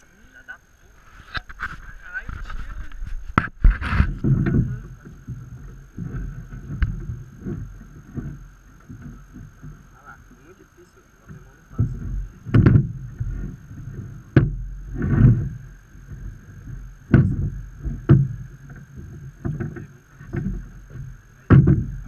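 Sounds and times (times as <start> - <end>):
footsteps on wooden boards: 1.3 - 22.0
trap knocking on wooden boards: 11.9 - 13.3, 20.4 - 22.0.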